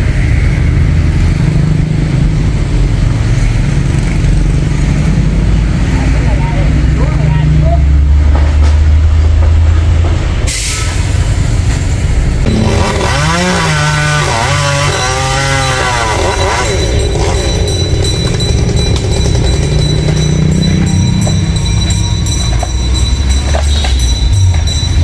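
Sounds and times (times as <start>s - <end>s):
chainsaw idling and revving: 12.4s - 21.9s.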